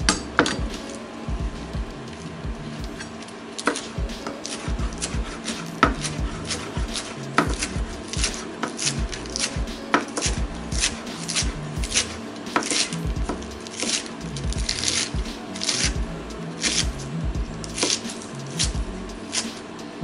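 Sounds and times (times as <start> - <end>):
knife chopping lettuce on board: 3.6 - 16.0, 17.8 - 19.6.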